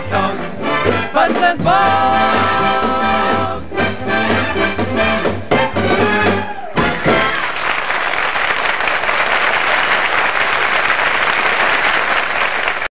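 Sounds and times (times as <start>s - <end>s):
brass band chord: 0.0s - 7.5s
audience applauding: 6.6s - 12.9s.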